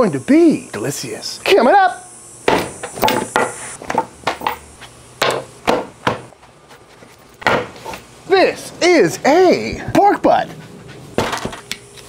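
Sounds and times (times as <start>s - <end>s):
objects set down on wood: 2.5s - 4.6s, 7.0s - 8.0s, 11.2s - 11.7s.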